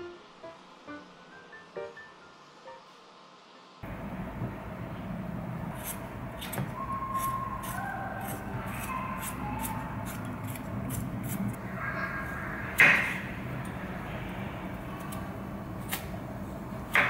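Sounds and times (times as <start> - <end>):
peeler scraping potato skin: 5.7 - 11.6.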